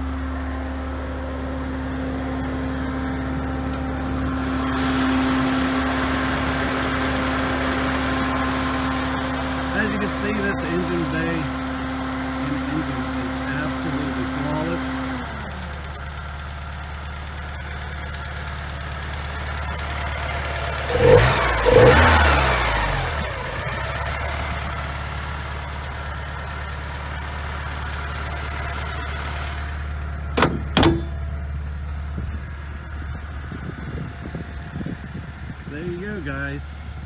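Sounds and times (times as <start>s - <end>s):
car engine idling and revving: 0.0s - 37.0s
car hood shutting: 30.3s - 31.3s.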